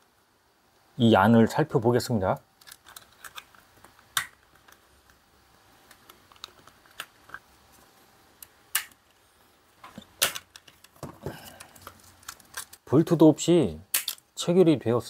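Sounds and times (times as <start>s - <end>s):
plastic clicks and snaps: 2.6s - 5.2s, 5.8s - 7.4s, 8.4s - 9.2s, 13.9s - 14.2s.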